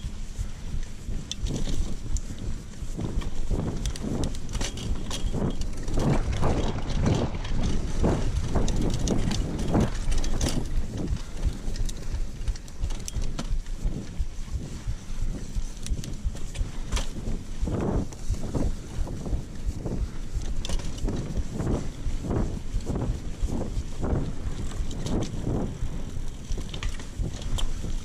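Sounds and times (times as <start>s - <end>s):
bike tyres rolling on dirt: 0.0s - 28.0s
wind rumble on microphone: 0.0s - 28.0s
bike clattering over bumps: 1.3s - 14.1s, 14.8s - 28.0s.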